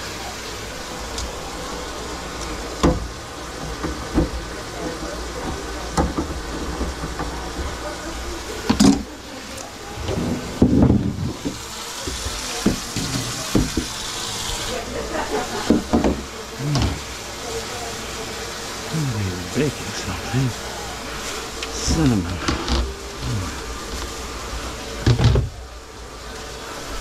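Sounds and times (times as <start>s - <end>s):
tap running into sink: 10.6s - 14.7s, 15.6s - 17.1s.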